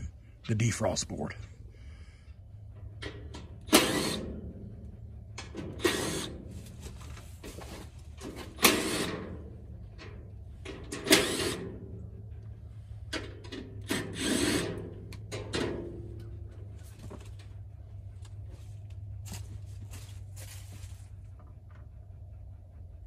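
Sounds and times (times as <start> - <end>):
steady low hum: 0.0 - 23.0
cordless drill backing out screws: 3.7 - 4.2, 5.7 - 6.3, 8.4 - 9.3, 10.9 - 11.6.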